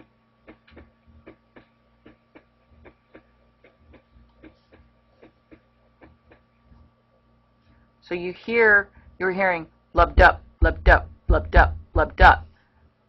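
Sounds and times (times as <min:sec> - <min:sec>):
heartbeat: 0:10.0 - 0:12.5.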